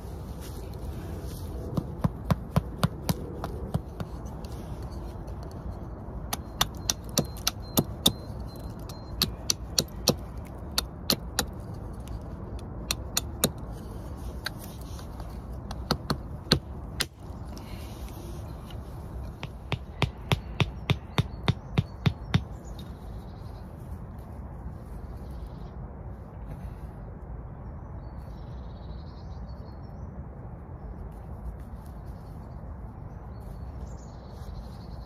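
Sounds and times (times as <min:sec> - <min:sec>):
steady low rumble: 0:00.0 - 0:35.0
sharp knocks and clicks: 0:06.3 - 0:11.6.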